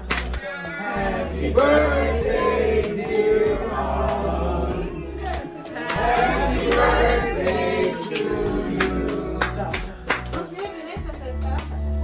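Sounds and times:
group of people singing: 0.2 - 10.1.

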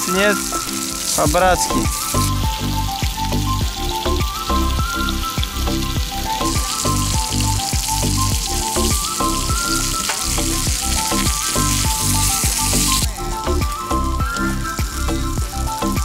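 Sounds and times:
meat sizzling in oil: 0.0 - 16.0
music with a bass line: 0.0 - 16.0.

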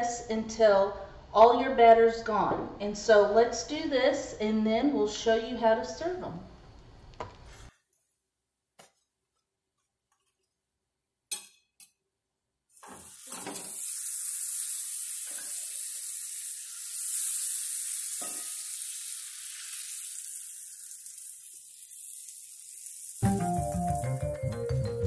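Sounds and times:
butter sizzling in skillet: 12.7 - 24.4
music: 23.2 - 25.0.

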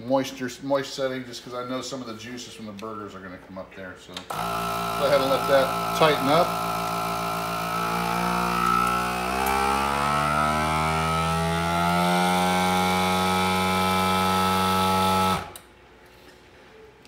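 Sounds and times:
vacuum sealer pump humming: 4.3 - 15.6.

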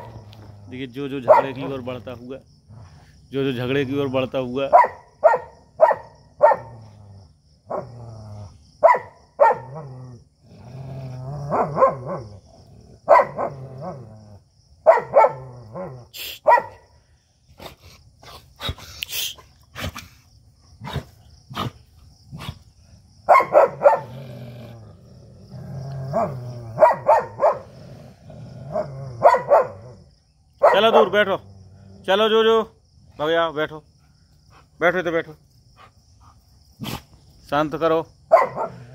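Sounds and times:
dogs barking aggressively: 0.0 - 2.0, 4.6 - 8.0, 8.8 - 10.0, 10.7 - 14.1, 14.8 - 16.9, 20.8 - 32.3, 38.2 - 38.9
dogs growling: 0.0 - 2.0, 2.6 - 3.9, 6.6 - 8.6, 9.6 - 14.5, 20.8 - 22.8, 23.6 - 30.2, 30.9 - 32.4, 38.4 - 38.9.

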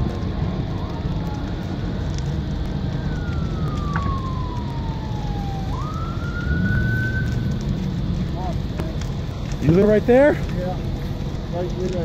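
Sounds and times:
emergency siren wailing: 0.0 - 9.6
low rumble of fire: 0.0 - 12.0.

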